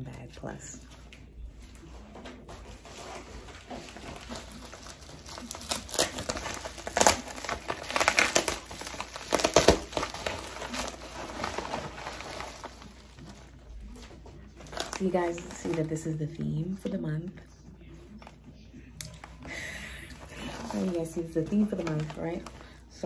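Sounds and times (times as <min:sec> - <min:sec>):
plastic mailer crinkling: 0:02.4 - 0:16.8, 0:19.3 - 0:23.0.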